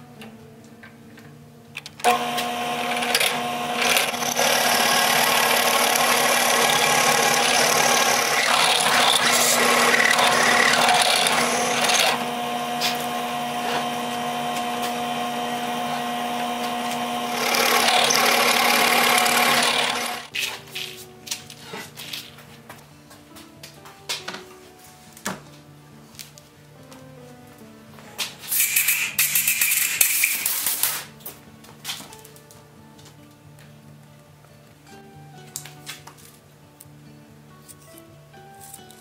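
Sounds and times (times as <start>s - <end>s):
drill press boring into wood: 2.0s - 20.3s.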